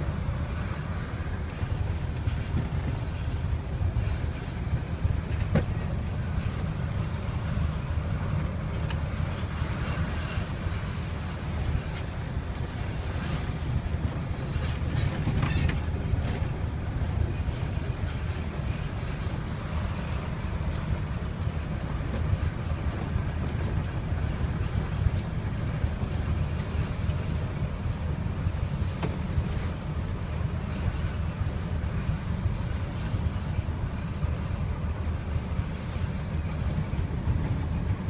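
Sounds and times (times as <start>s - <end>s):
light ticks: 8.8s - 9.0s.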